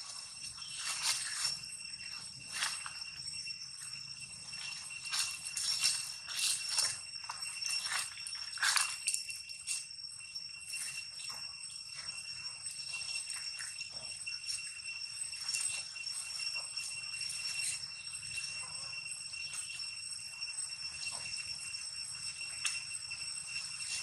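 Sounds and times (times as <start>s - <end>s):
rustling in dry leaves: 0.0s - 3.2s, 4.3s - 9.8s
high-pitched insect drone: 0.0s - 24.0s.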